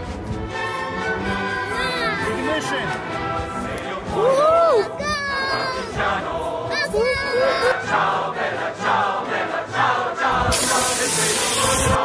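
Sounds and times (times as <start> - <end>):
choir singing with music: 0.0 - 12.0
loud bright hiss: 10.5 - 12.0.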